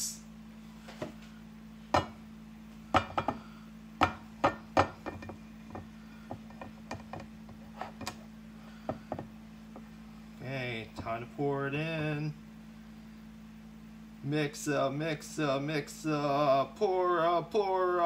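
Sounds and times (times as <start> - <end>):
ceramic bowl knocking on glass dish: 1.9 - 2.2, 2.9 - 3.4, 4.0 - 7.3.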